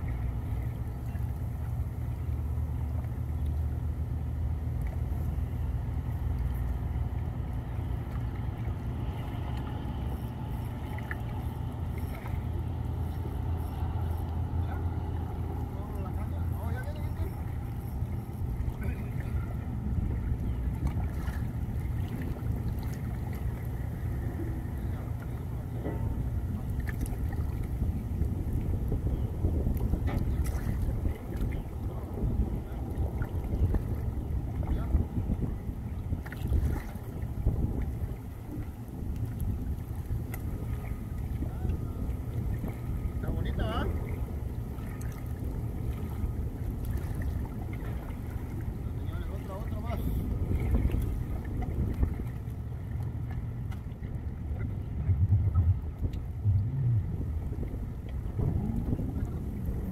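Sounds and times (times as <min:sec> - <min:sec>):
wind buffeting microphone: 0:06.8 - 0:59.9.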